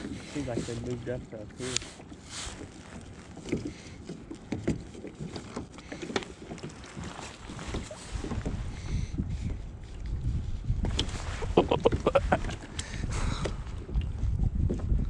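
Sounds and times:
wind on microphone: 7.0 - 15.0.

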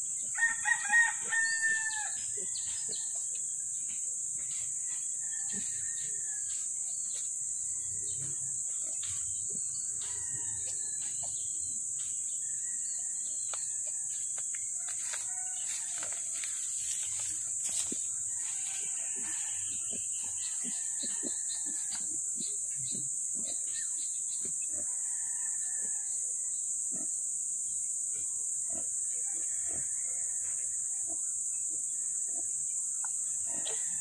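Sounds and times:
steady high-pitched hiss: 8.6 - 24.3.

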